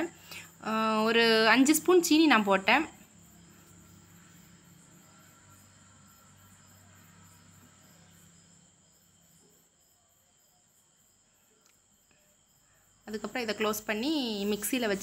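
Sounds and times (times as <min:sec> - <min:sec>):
faint insect chirping: 0:00.0 - 0:15.0.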